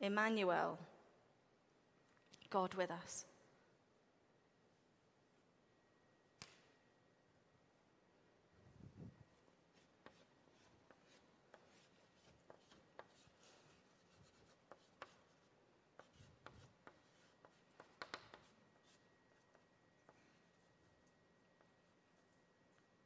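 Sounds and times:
chalk scratching on board: 9.7s - 19.6s.

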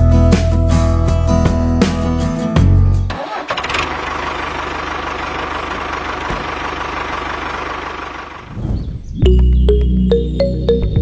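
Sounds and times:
tractor engine running: 2.8s - 8.6s.

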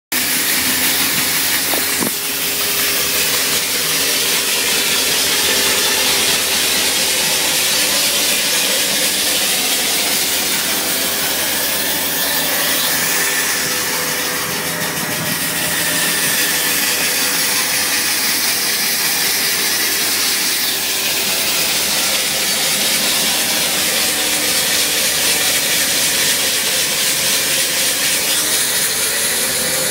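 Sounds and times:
machine hum: 0.2s - 22.4s
rock saw grinding hiss: 0.2s - 29.9s.

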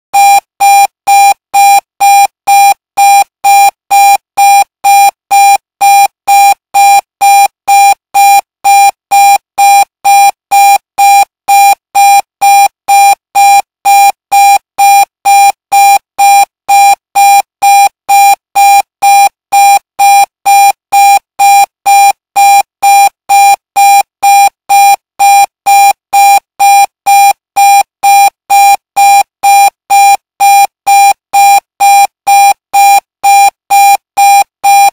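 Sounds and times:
alarm clock beeping: 16.3s - 34.9s.

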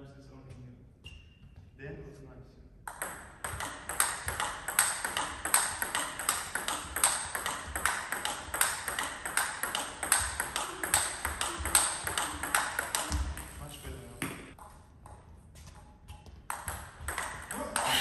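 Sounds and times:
ball bouncing on table: 2.9s - 13.6s, 14.2s - 17.9s
ball clicking off table tennis bats: 2.9s - 13.6s, 14.2s - 18.0s.

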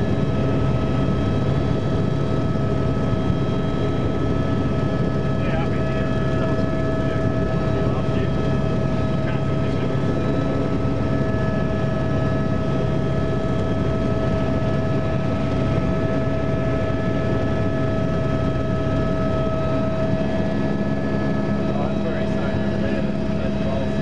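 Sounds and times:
helicopter cabin whine and rumble: 0.0s - 24.0s.

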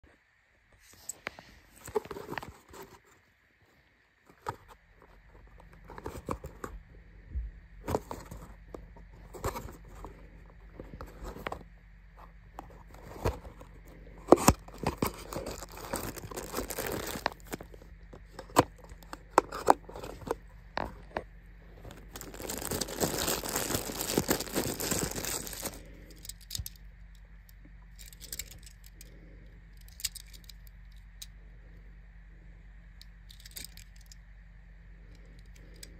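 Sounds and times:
plastic wrapper crinkling: 14.3s - 21.2s, 21.8s - 26.8s.

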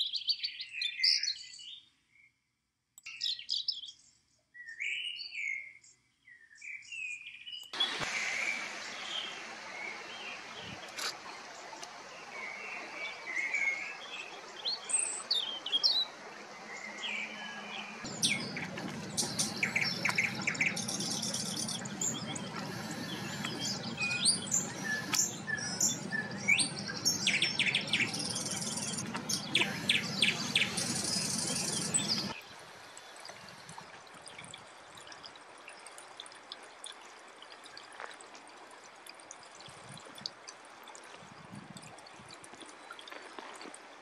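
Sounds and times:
birds chirping and singing: 12.5s - 32.4s
low background rumble: 16.1s - 32.8s.

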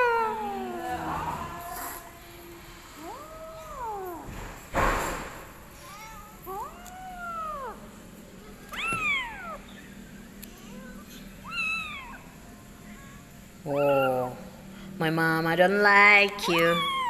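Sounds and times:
kitten meowing: 8.7s - 9.6s.

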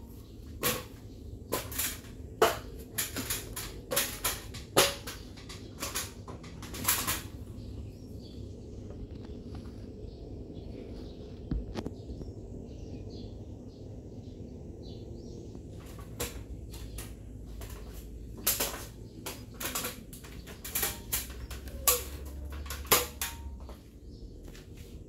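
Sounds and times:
ceiling fan humming: 0.0s - 25.0s
sharp clicks and knocks: 0.5s - 7.5s, 15.8s - 23.9s.

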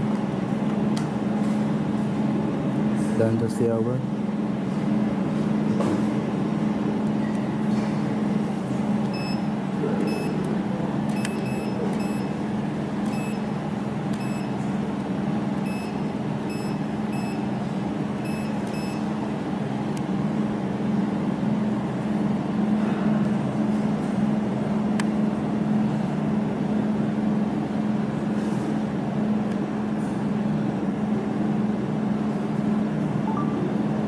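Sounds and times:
laser welding machine hum: 0.0s - 34.0s
short electronic beeps: 9.1s - 9.5s, 10.1s - 10.4s, 11.1s - 12.3s, 13.1s - 13.4s, 14.2s - 14.5s, 15.6s - 17.4s, 18.2s - 19.0s.

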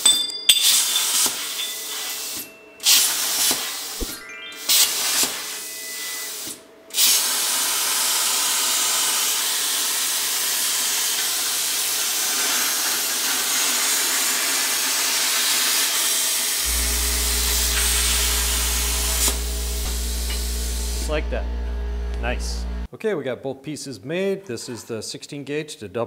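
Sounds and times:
plasma arc loud hiss: 1.0s - 21.2s
steady low hum: 16.6s - 22.9s.

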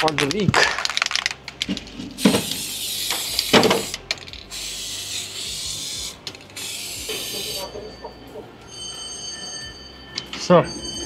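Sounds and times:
aerosol can spraying hiss: 2.2s - 7.8s.

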